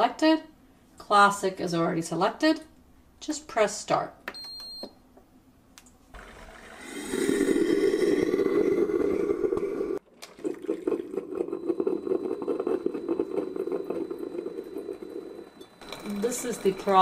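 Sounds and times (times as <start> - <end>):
coffee maker humming: 6.2 - 17.0.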